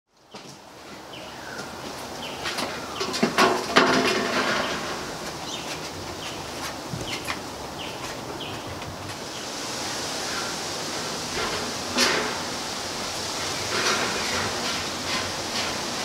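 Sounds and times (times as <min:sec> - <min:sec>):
puppies knocking and scuffling: 0:02.0 - 0:09.2.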